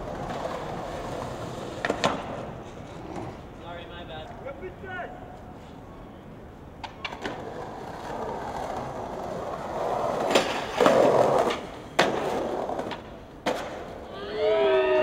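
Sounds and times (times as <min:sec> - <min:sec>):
skateboard clacks: 0:00.0 - 0:03.4, 0:06.8 - 0:14.1
skateboard wheels rolling: 0:00.0 - 0:03.7, 0:05.4 - 0:15.0.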